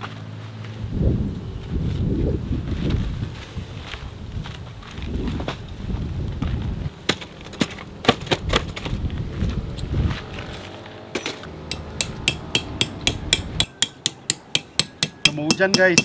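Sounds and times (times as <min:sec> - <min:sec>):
regular tapping: 0:11.6 - 0:16.0.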